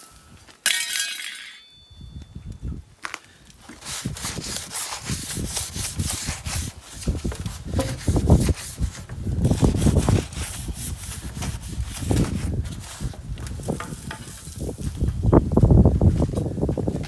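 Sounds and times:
cloth scrubbing bamboo: 0:03.8 - 0:13.2.

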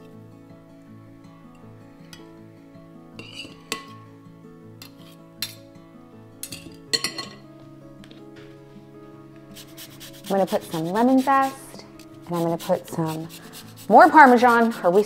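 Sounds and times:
light background music: 0:00.0 - 0:15.0
utensil clinking on plate: 0:06.4 - 0:07.4.

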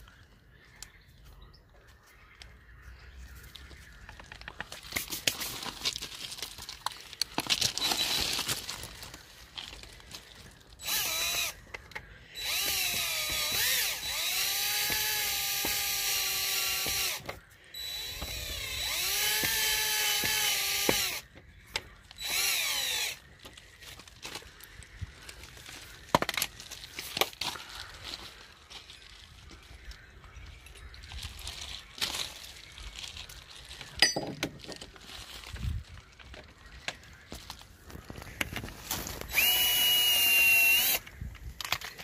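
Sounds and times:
cordless drill whining: 0:07.6 - 0:08.7, 0:10.8 - 0:21.3, 0:22.1 - 0:23.2, 0:38.6 - 0:41.9.

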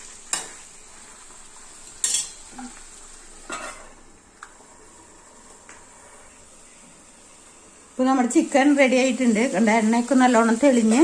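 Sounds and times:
food sizzling in a pot: 0:00.0 - 0:11.0
spoon stirring and scraping pot: 0:02.0 - 0:02.8.

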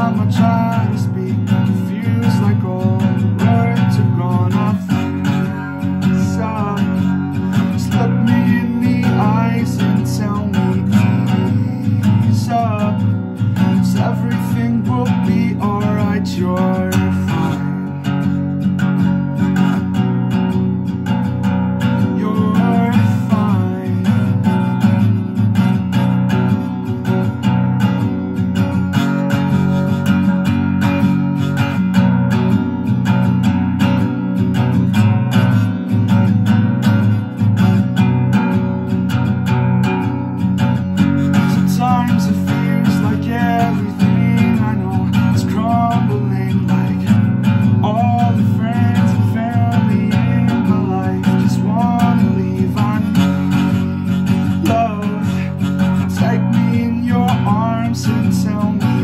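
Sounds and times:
person singing wordlessly: 0:00.0 - 0:18.1, 0:21.8 - 0:24.9, 0:41.1 - 0:59.0
acoustic guitar strumming: 0:00.0 - 0:59.0.

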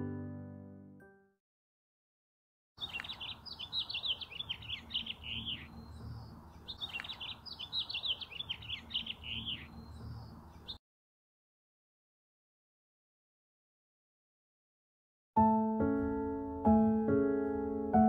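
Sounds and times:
piano chord: 0:00.0 - 0:01.3, 0:15.4 - 0:18.0
small birds chirping: 0:02.8 - 0:10.8.

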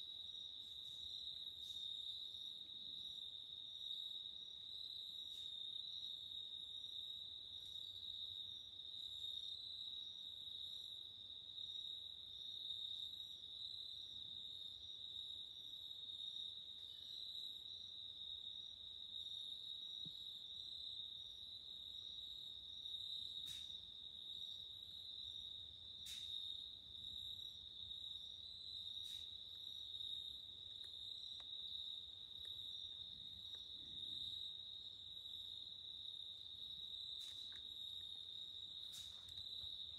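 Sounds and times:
crickets trilling: 0:22.1 - 0:39.9.

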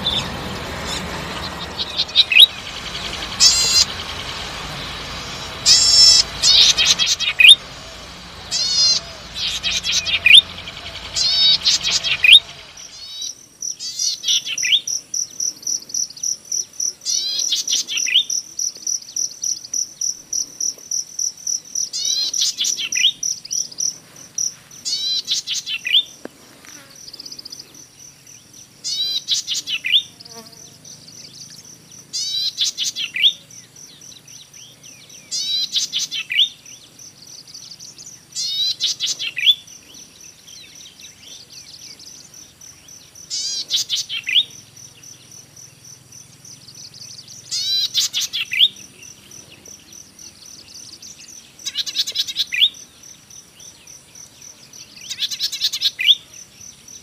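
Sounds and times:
high insect trill: 0:00.0 - 0:57.0
bird singing short phrases: 0:46.7 - 0:49.1.

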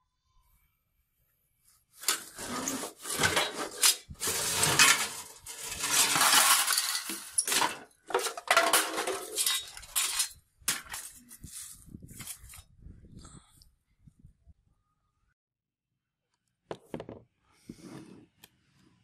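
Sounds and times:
scrap metal clanking and scraping: 0:02.0 - 0:11.2.

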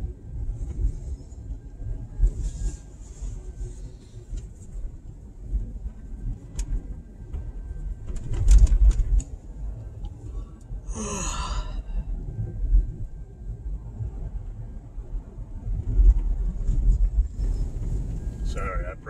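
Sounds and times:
vehicle rumbling on snowy road: 0:00.0 - 0:19.0
knocks and jolt in vehicle: 0:04.2 - 0:10.3, 0:15.7 - 0:18.8
person sighing: 0:10.9 - 0:11.9.

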